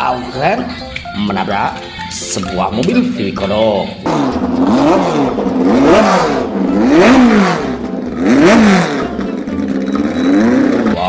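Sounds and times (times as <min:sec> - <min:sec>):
car engine revving: 0:03.9 - 0:11.0.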